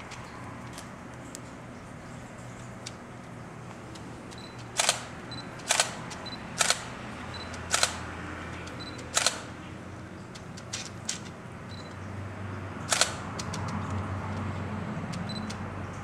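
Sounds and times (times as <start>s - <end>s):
camera shutter double click: 4.8s - 6.0s, 6.6s - 6.9s, 9.1s - 9.5s, 12.9s - 13.2s.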